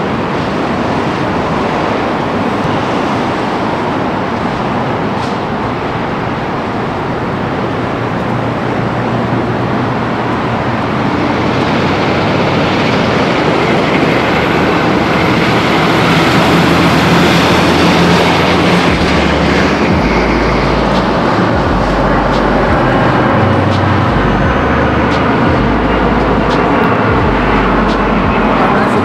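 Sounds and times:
jet plane passing overhead: 0.0s - 29.0s.

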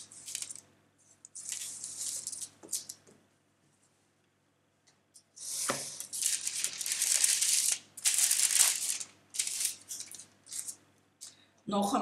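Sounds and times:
baking paper rustling: 0.0s - 0.6s, 1.4s - 3.0s, 5.5s - 10.8s.

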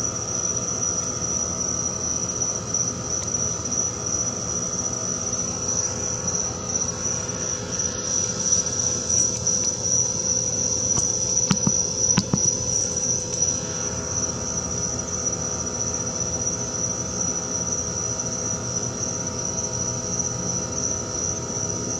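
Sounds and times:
night insects trilling: 0.0s - 21.9s
sharp clicks: 11.0s - 12.5s.

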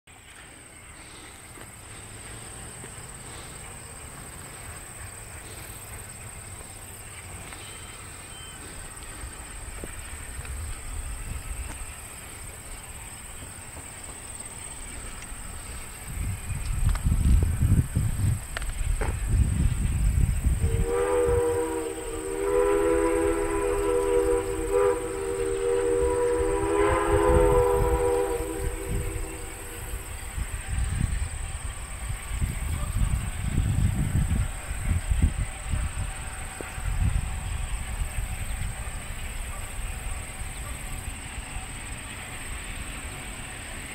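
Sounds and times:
insects trilling: 0.3s - 43.9s
wind rumble on microphone: 15.2s - 40.2s
train whistle blowing: 20.5s - 43.8s.

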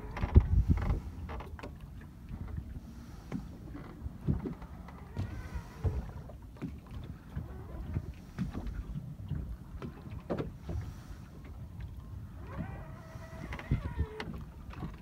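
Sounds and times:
low wind rumble: 0.0s - 15.0s
waves slapping boat hull: 0.0s - 15.0s.

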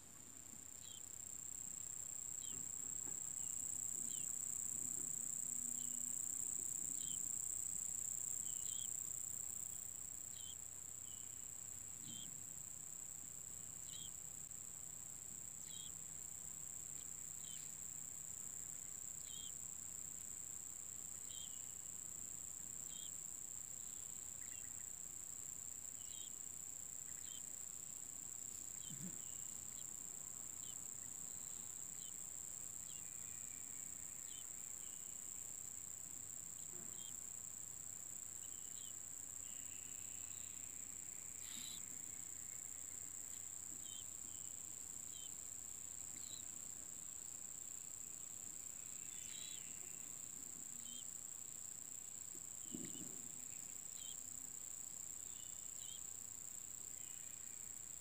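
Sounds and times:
high-pitched insect trill: 0.6s - 58.0s.

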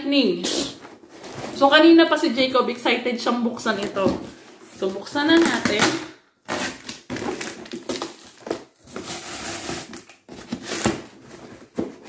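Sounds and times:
cardboard box being ripped open: 6.5s - 12.0s.

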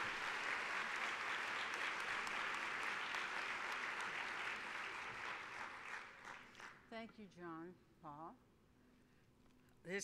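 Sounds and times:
large audience applauding: 0.0s - 6.8s.

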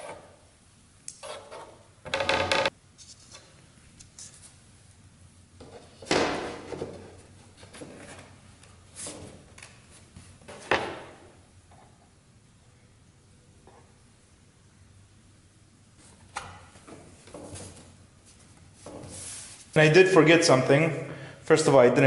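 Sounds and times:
plywood sheets sliding and rubbing: 5.7s - 10.7s, 16.0s - 19.8s.

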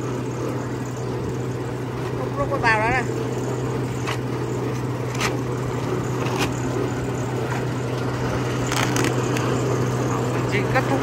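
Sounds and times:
electric motor humming: 0.0s - 11.0s
plastic sack rustling: 8.6s - 9.4s.

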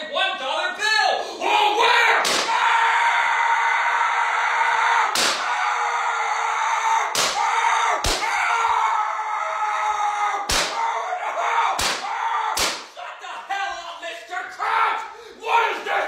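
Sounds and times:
cartoon slap hits: 2.2s - 2.5s, 5.2s - 5.4s, 7.1s - 7.4s, 10.5s - 10.8s, 11.8s - 12.9s.

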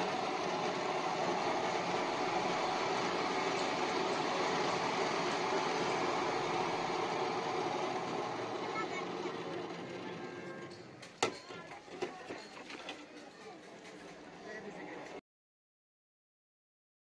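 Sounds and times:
cotton candy machine whirring: 0.0s - 12.8s.

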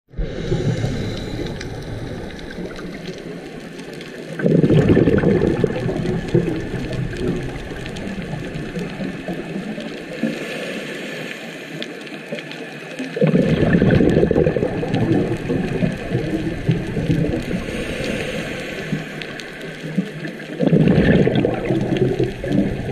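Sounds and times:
bubbles burbling from diver exhaling: 0.1s - 10.4s, 13.2s - 22.9s
watery hiss: 0.2s - 12.4s, 13.1s - 22.9s.

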